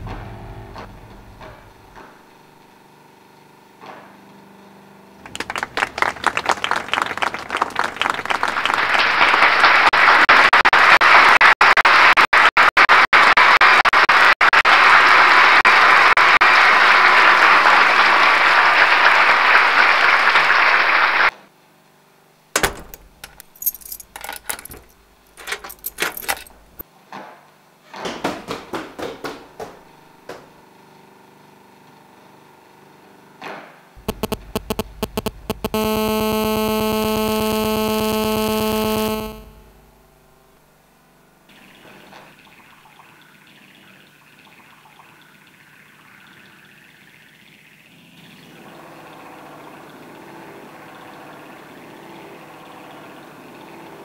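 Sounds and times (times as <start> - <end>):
audience applause: 5.2 - 21.3.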